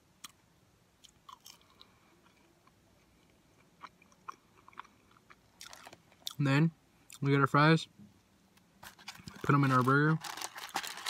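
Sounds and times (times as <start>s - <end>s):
person chewing food: 1.0s - 6.4s.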